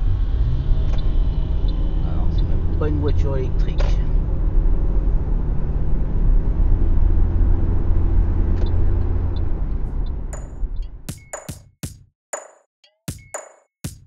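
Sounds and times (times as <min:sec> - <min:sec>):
car road and tyre rumble: 0:00.0 - 0:10.8
electronic drum hits: 0:10.3 - 0:14.0.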